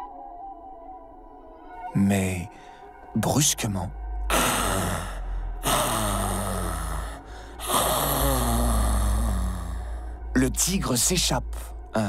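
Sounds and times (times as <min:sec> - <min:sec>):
crocodile rasping growls: 0:04.3 - 0:10.0.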